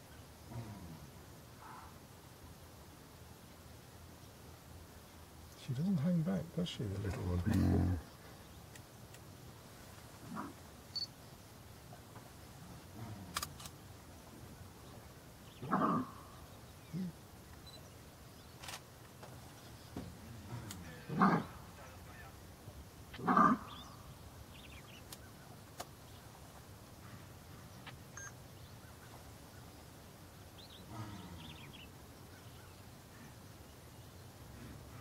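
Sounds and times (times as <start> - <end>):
faint bird chirps: 10.3 - 12.1, 14.8 - 18.8, 23.1 - 35.0
loud animal calls: 15.6 - 17.2, 20.3 - 22.4, 23.1 - 24.0.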